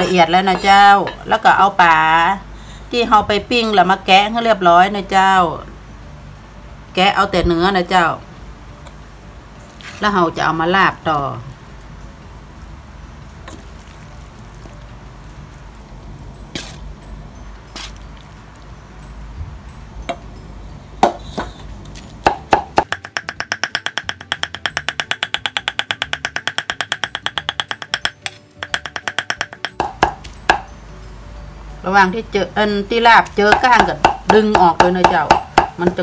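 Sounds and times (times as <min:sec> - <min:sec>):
cleaver chopping on wooden block: 0:22.2 - 0:30.7, 0:33.3 - 0:36.0
scattered knocks: 0:22.2 - 0:30.7.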